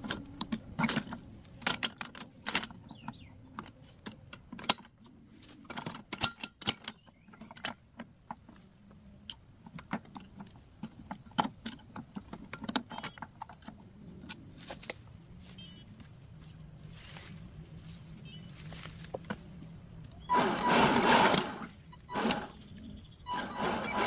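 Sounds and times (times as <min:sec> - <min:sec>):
small parts and tools clicking: 0:00.0 - 0:08.6, 0:09.2 - 0:15.0.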